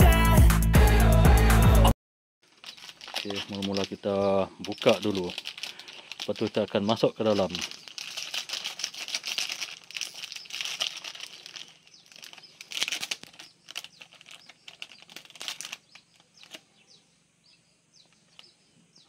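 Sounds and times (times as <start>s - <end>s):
plastic packaging crinkling: 2.4s - 16.7s.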